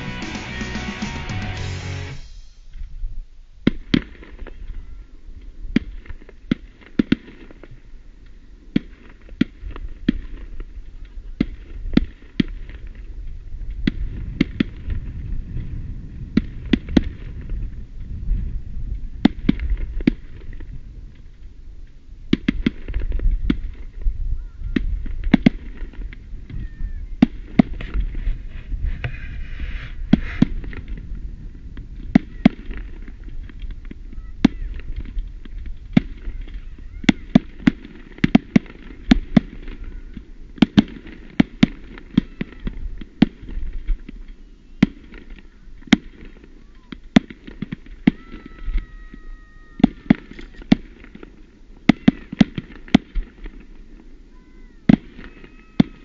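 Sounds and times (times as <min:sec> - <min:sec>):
firework shells bursting: 0:27.2 - 0:31.1, 0:49.7 - 0:54.1
low rumble: 0:28.1 - 0:34.2.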